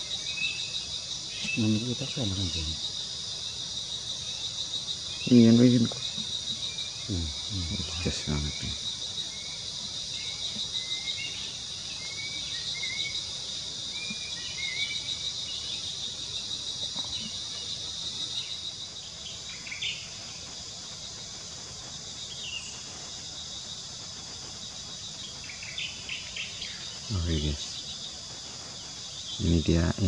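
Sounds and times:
small bird chirping: 0:00.0 - 0:20.6
insect chorus trilling: 0:00.0 - 0:30.0.

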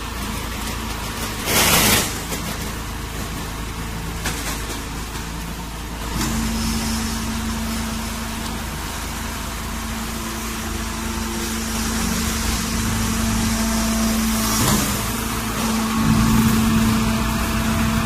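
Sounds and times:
hydraulic press machine noise: 0:01.2 - 0:18.0
steady hum: 0:06.1 - 0:18.0.

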